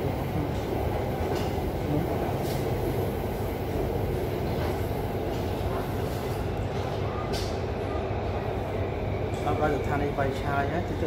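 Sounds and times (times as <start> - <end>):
train running heard from inside: 0.0 - 11.0.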